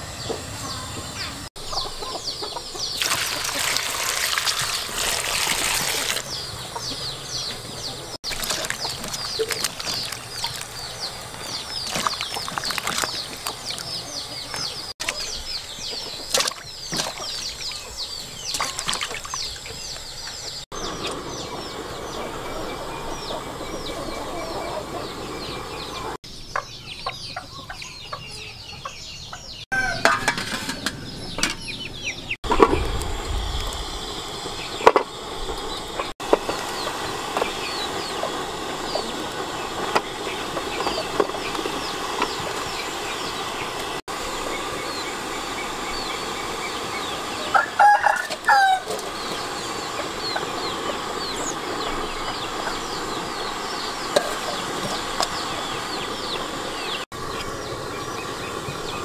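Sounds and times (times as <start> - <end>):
water pouring into metal pot: 3.0 - 6.3.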